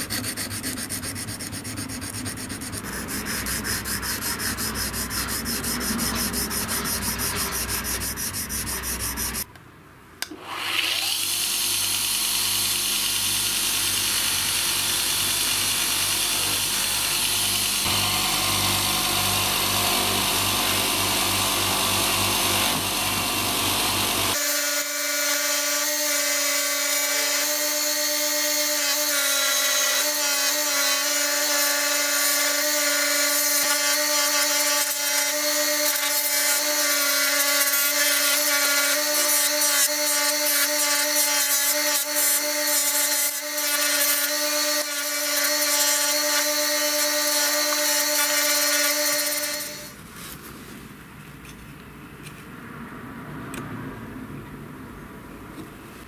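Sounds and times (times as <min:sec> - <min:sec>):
bench grinder running: 0:00.0 - 0:09.4, 0:10.4 - 0:50.0
hand file scraping metal: 0:00.0 - 0:09.5.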